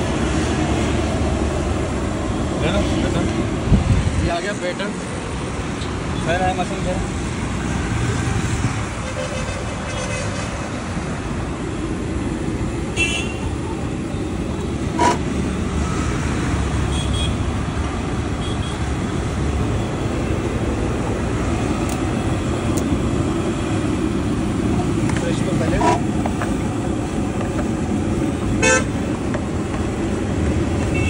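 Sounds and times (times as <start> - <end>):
street traffic: 0.0 - 31.0
vehicle horn toot: 13.0 - 13.4, 14.9 - 15.2, 28.6 - 28.9.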